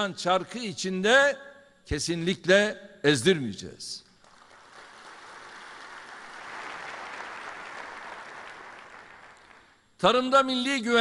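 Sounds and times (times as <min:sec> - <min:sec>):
audience applauding: 0:04.2 - 0:09.8.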